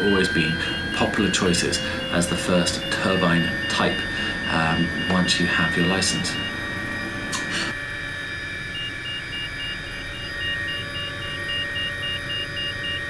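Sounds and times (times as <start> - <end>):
cockpit tone beeping: 0.0 - 7.8
helicopter rotor and engine drone: 0.0 - 13.0.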